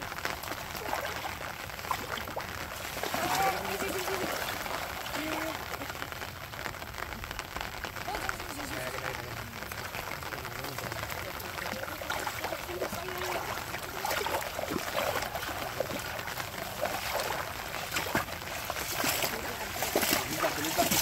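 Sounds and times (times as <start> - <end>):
people wading through water: 0.0 - 21.0
water sloshing and splashing: 0.0 - 21.0.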